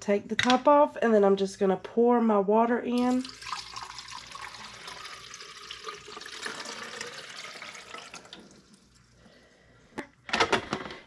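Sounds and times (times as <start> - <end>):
water pouring into plastic reservoir: 3.0 - 9.0.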